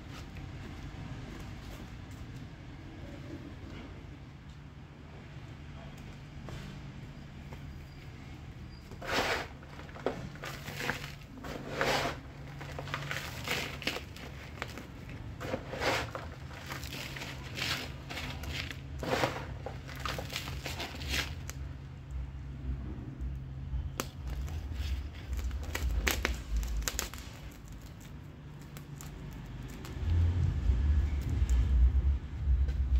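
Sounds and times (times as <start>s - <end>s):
hands scooping potting soil: 8.8s - 21.7s.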